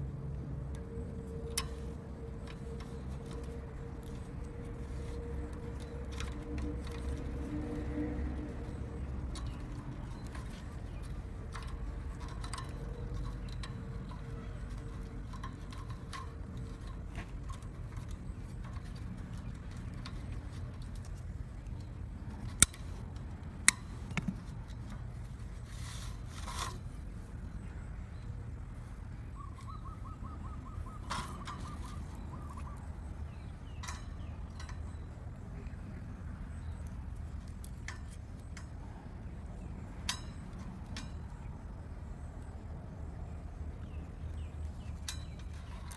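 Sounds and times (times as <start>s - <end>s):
low background rumble: 0.0s - 45.9s
side cutters snipping cable ties: 22.3s - 24.4s.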